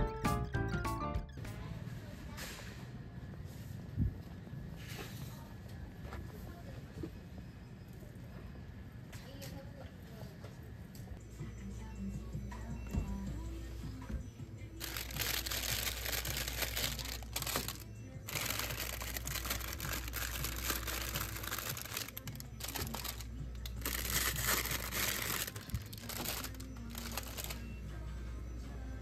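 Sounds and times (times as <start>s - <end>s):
background music: 0.0s - 1.8s, 11.2s - 29.0s
plastic wrappers crinkling: 14.8s - 27.6s.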